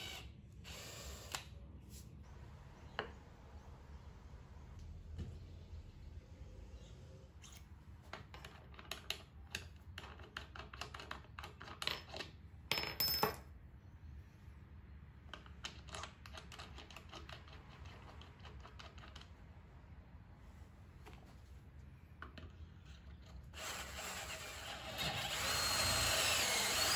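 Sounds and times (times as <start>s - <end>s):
metal parts clicking and tapping: 8.1s - 13.4s.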